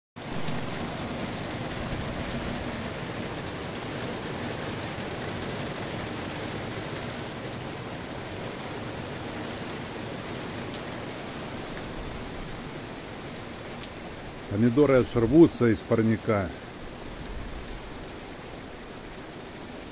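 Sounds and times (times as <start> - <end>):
rain on foliage and paving: 0.2 - 19.9
raindrop ticks: 10.3 - 12.0, 12.7 - 15.4.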